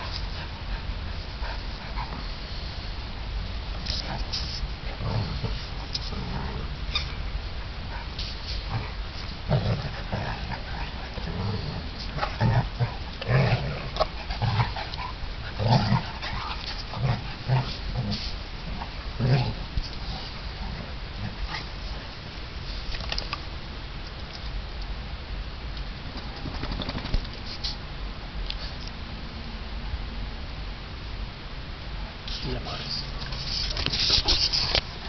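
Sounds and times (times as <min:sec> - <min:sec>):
dogs growling and grunting: 0:03.9 - 0:22.0.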